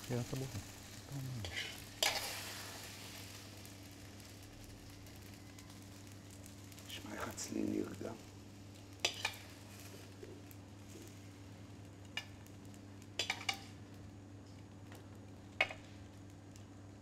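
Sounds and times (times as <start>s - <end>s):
faint low hum: 0.0s - 17.0s
metal spatula scraping frying pan: 1.4s - 2.7s, 9.0s - 9.5s.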